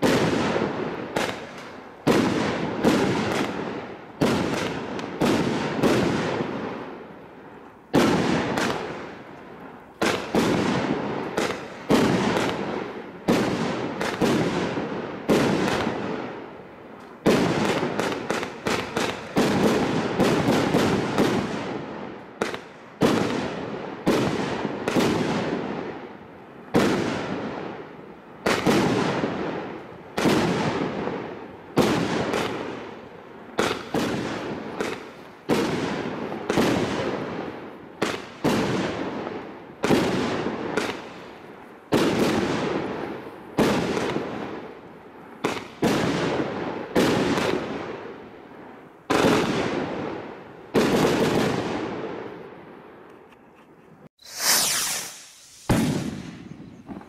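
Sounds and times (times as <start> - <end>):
firework cake bangs: 0.0 - 6.9, 10.0 - 16.3, 54.3 - 57.0.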